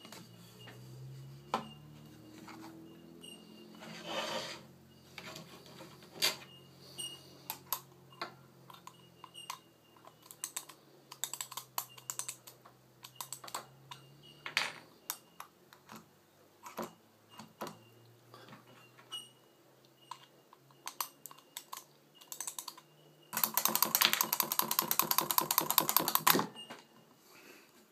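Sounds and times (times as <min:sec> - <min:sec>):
toy clicks and taps: 0:07.5 - 0:14.1, 0:20.1 - 0:26.4.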